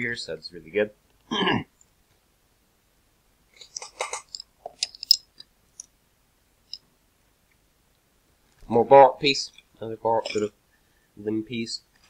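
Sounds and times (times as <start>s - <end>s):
plastic toy bricks clicking: 3.6s - 5.5s.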